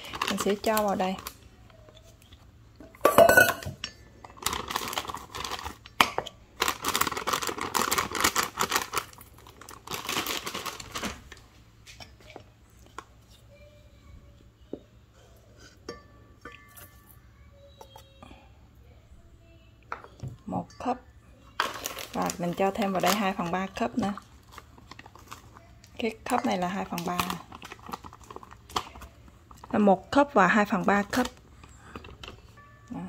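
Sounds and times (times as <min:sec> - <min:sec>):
plastic bag crinkling: 0:00.0 - 0:01.4, 0:04.3 - 0:11.4, 0:21.5 - 0:29.8
cup tapping on metal bowl: 0:02.9 - 0:04.0.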